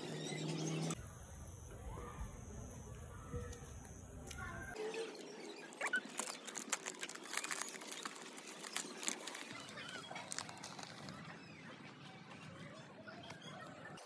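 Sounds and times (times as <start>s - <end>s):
plastic packet crinkling: 5.8s - 11.3s.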